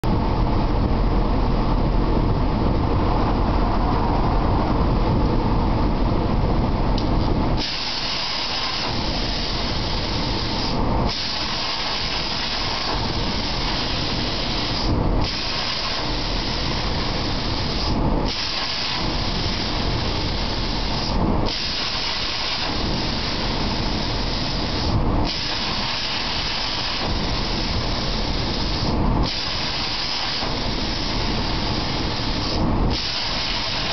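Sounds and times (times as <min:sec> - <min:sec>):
deep steady rushing noise: 0:00.0 - 0:33.9
plasma torch hissing: 0:07.6 - 0:33.9.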